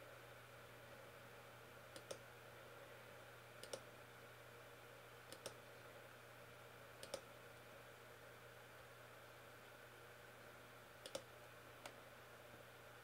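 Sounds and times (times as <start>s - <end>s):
faint room hum: 0.0s - 13.0s
computer mouse clicks: 1.9s - 2.2s, 3.6s - 3.9s, 5.3s - 5.6s, 7.0s - 7.3s, 11.0s - 12.0s.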